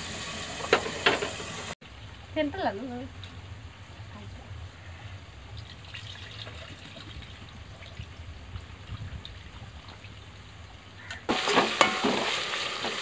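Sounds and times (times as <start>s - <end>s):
food sizzling in hot oil: 0.0s - 1.8s, 11.3s - 13.0s
liquid trickling and splashing: 5.5s - 13.0s.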